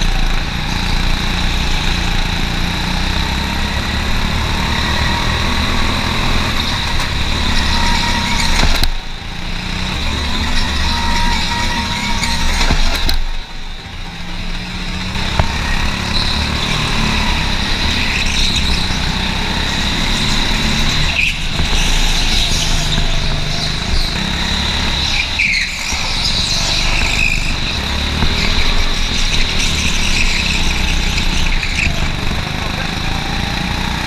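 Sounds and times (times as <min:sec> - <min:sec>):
go-kart engine whine: 0:00.0 - 0:34.0
tyre squeals: 0:04.7 - 0:09.1, 0:09.8 - 0:14.2, 0:14.8 - 0:32.6.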